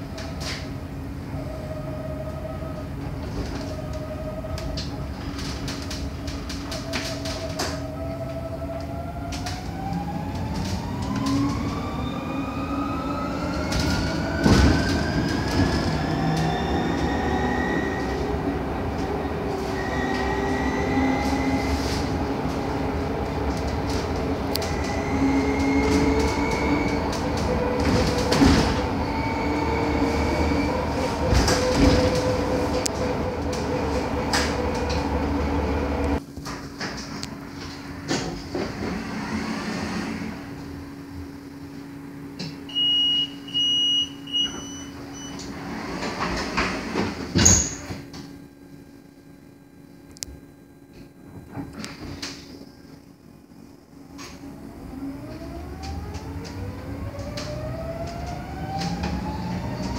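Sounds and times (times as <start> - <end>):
electric bus motor whining: 0.0 - 36.2, 37.2 - 42.8, 51.3 - 59.9
road noise: 9.3 - 36.2
bus body knocks and rattles: 13.8 - 16.0, 27.5 - 29.0, 31.2 - 32.6.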